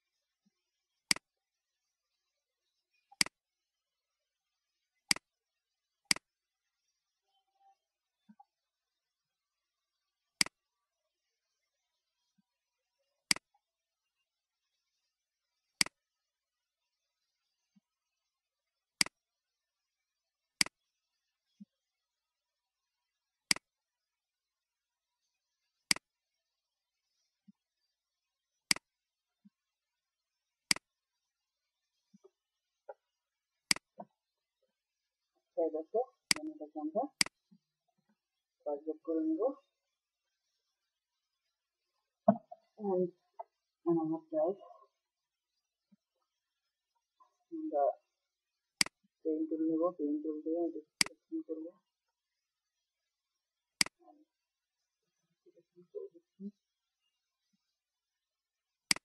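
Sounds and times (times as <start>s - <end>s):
computer mouse clicks: 33.7s - 34.0s, 53.8s - 54.0s.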